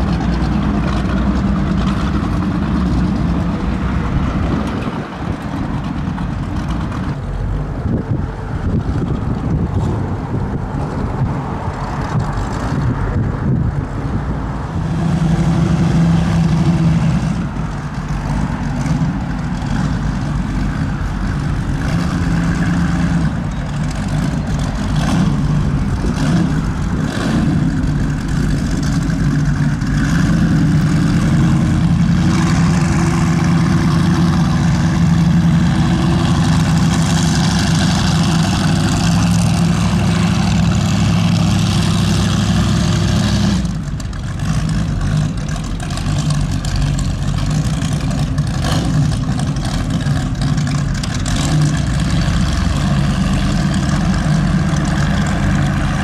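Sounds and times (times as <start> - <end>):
powerboat engines rumbling: 0.0 - 56.0.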